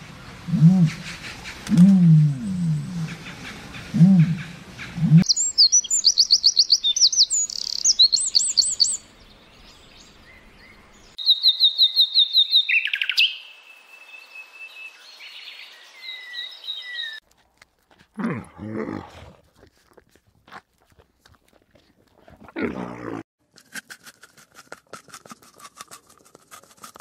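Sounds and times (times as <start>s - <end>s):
low animal call: 0.5s - 3.3s
nightingale singing: 4.2s - 17.2s
wren trilling song: 4.3s - 13.6s.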